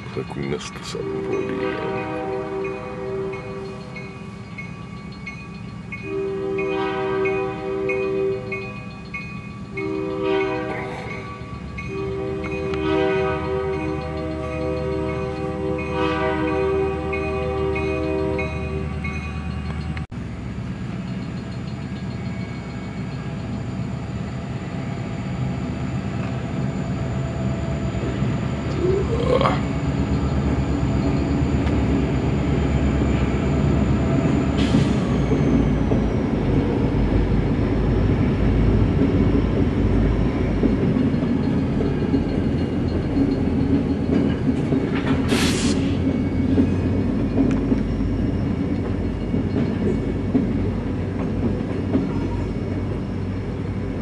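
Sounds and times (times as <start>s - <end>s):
train wheels rumbling on rail: 0.0s - 54.0s
train horn blast: 1.0s - 3.7s, 6.0s - 8.6s, 9.8s - 11.1s, 11.9s - 18.8s.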